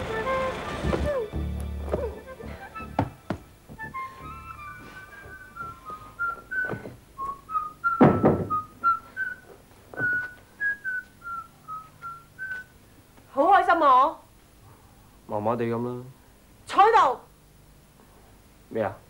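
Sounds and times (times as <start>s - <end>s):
man whistling a tune: 3.8s - 12.7s
loud thud: 8.0s - 8.6s.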